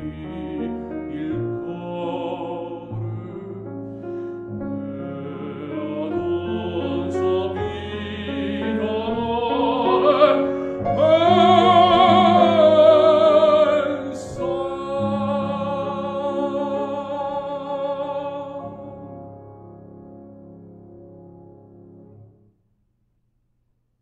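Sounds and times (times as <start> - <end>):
man singing: 0.0 - 4.0, 4.7 - 19.1
piano accompaniment: 0.0 - 22.5.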